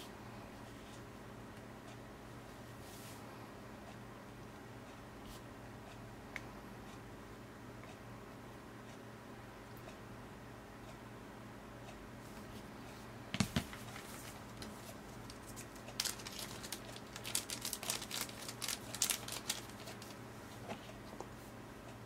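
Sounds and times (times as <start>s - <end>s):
packaging crinkling: 13.7s - 20.2s.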